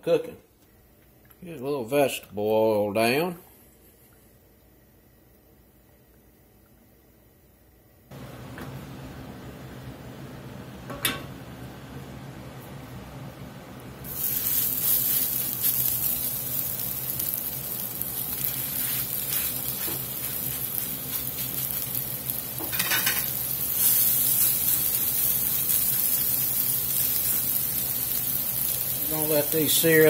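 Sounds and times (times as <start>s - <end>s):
meat patties sizzling in oil: 14.0s - 30.0s.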